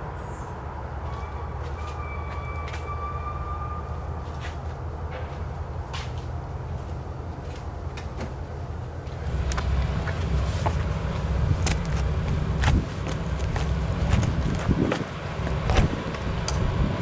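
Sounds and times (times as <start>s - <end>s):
diesel locomotive rumbling: 0.0s - 17.0s.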